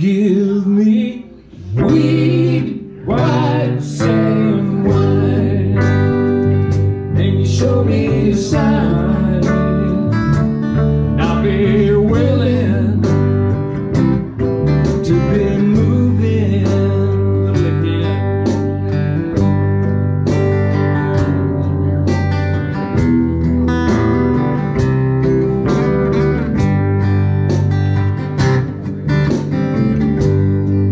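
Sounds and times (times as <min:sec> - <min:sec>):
man singing: 0:00.0 - 0:06.4, 0:07.1 - 0:10.3, 0:11.1 - 0:13.5, 0:15.0 - 0:18.5
electric and acoustic guitars: 0:00.0 - 0:30.9.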